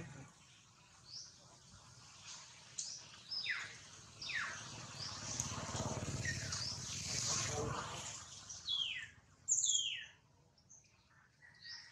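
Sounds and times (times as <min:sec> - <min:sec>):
birds chirping: 0:02.8 - 0:05.4, 0:06.1 - 0:07.2, 0:08.3 - 0:11.9.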